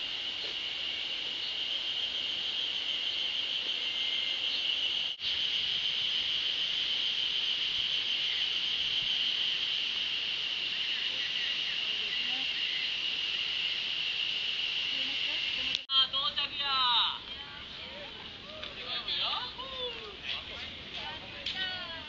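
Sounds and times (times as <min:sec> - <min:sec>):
high-pitched insect drone: 0:00.0 - 0:16.5.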